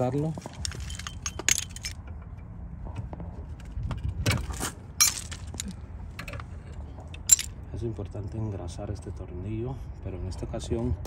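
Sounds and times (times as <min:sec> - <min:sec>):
metal parts clinking: 0:00.0 - 0:02.2, 0:04.6 - 0:06.5, 0:07.1 - 0:07.6.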